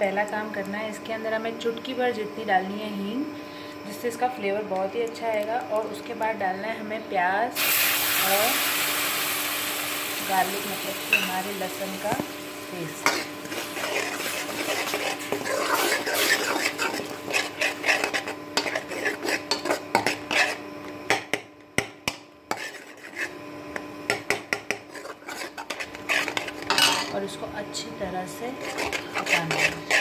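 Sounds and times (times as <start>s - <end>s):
steel spoon scraping a metal pan: 11.1s - 11.4s, 12.9s - 20.6s, 22.5s - 23.4s, 24.1s - 27.2s, 28.4s - 30.0s.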